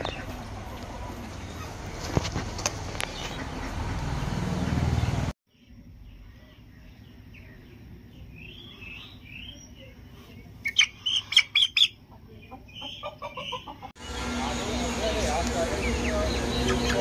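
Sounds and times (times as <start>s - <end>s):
chickens clucking: 0.0s - 5.1s, 9.8s - 17.0s
chickens calling: 0.0s - 5.3s, 6.8s - 17.0s.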